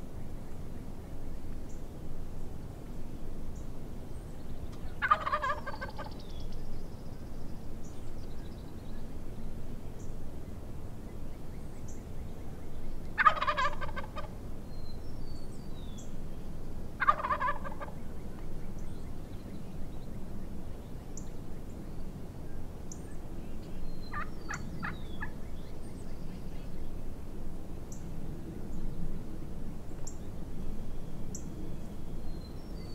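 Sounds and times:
turkey gobbling: 4.8s - 6.2s, 13.2s - 14.4s, 17.0s - 18.0s, 24.1s - 25.3s.

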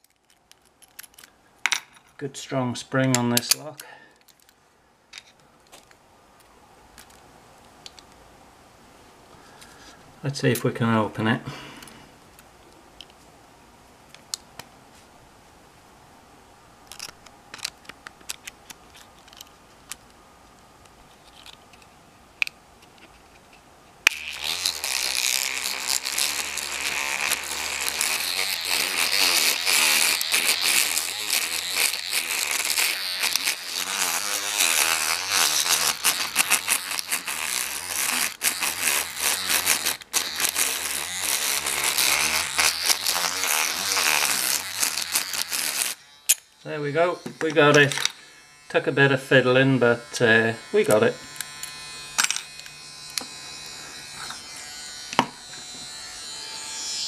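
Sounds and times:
pick rattling padlock pins: 0.0s - 1.3s
electric toothbrush motor buzzing: 24.1s - 57.0s.

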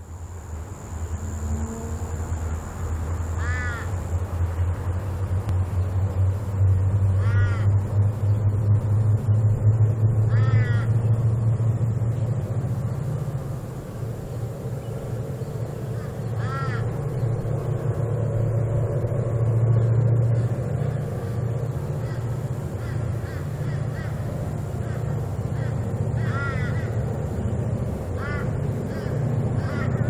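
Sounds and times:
diesel locomotive drone: 0.0s - 30.0s
crow cawing: 3.4s - 3.9s, 7.2s - 7.7s, 10.3s - 10.9s, 16.0s - 16.9s, 22.0s - 27.0s, 28.2s - 30.0s.

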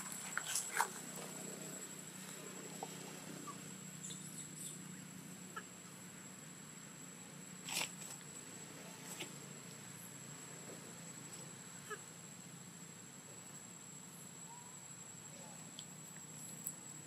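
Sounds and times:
faint animal calls: 0.0s - 5.8s, 11.7s - 12.2s, 14.4s - 15.8s
faint steady hum: 0.0s - 17.0s.

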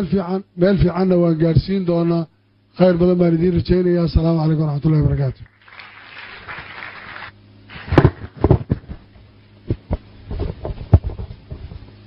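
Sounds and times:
steady low hum: 0.0s - 12.0s
microphone handling thumps: 7.8s - 11.9s.

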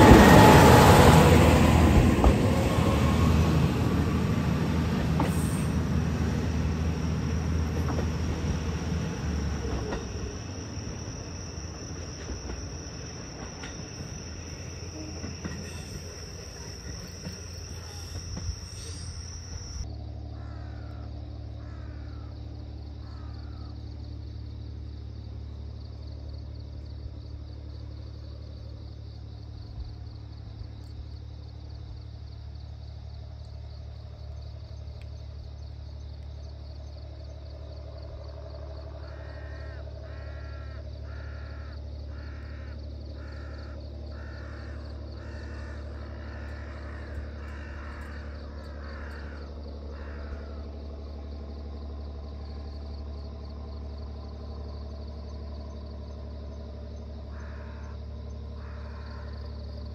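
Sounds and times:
faint high chirring: 7.0s - 19.8s
crow cawing: 20.3s - 22.3s, 23.0s - 23.7s, 39.0s - 50.7s, 57.3s - 58.0s, 58.6s - 59.4s.

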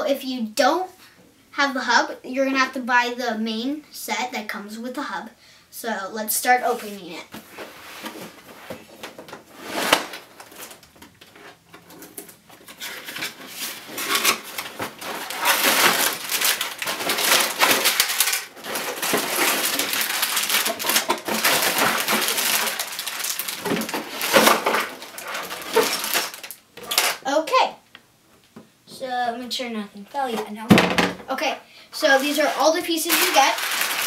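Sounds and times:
plastic bags crinkling: 9.8s - 27.2s, 32.0s - 34.0s.

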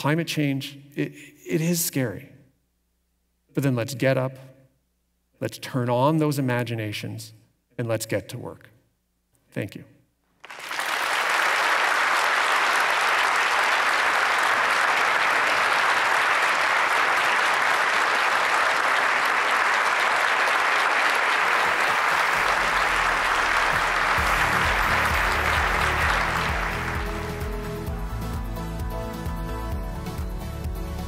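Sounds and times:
audience applauding: 10.4s - 28.4s
music: 21.6s - 31.0s.

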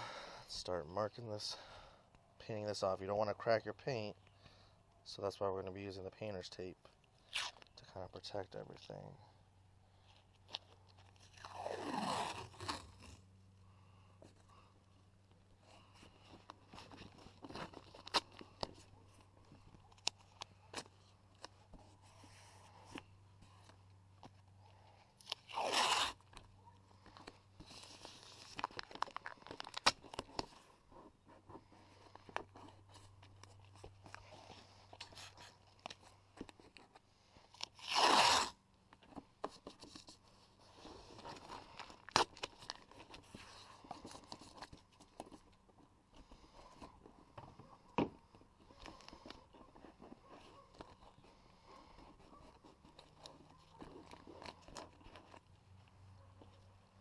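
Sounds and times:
tape crinkling and clicking: 7.0s - 7.9s, 10.0s - 13.2s, 15.3s - 21.9s, 25.2s - 47.2s, 52.0s - 56.7s
tape tearing off roll: 11.2s - 13.2s, 25.2s - 26.4s, 37.6s - 38.6s.

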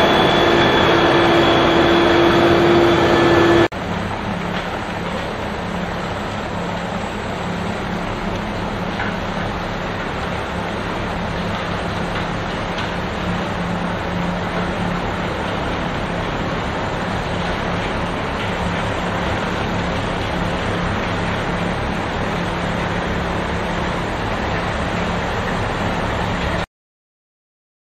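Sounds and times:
diesel engines droning: 0.0s - 3.7s.

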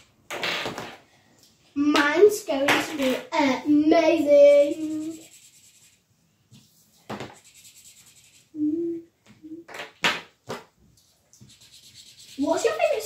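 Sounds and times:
markers scratching on paper: 4.5s - 8.6s, 11.4s - 13.0s.

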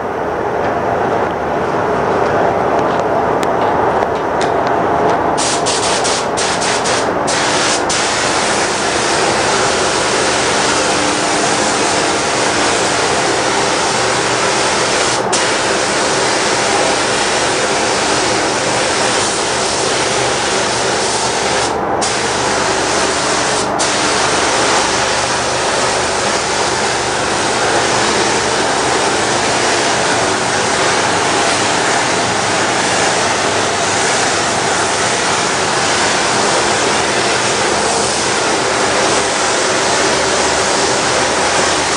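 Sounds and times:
paint spray gun hissing: 5.4s - 29.3s, 33.7s - 41.9s.

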